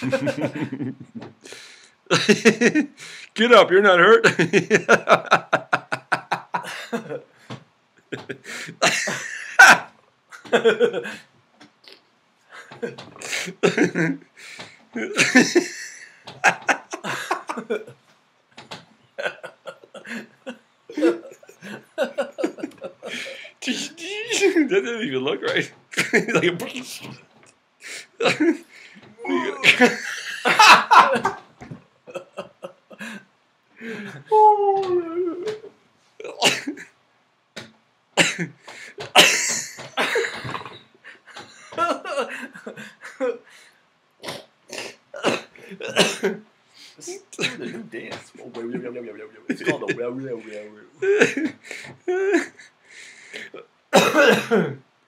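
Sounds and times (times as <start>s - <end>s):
man coughing and hacking: 8.2s - 9.9s, 36.2s - 36.9s, 38.2s - 40.8s, 44.2s - 46.4s, 47.1s - 47.8s, 53.4s - 54.8s
man making wordless vocal noises: 23.0s - 24.9s, 25.5s - 27.2s, 29.2s - 30.2s, 33.8s - 36.7s.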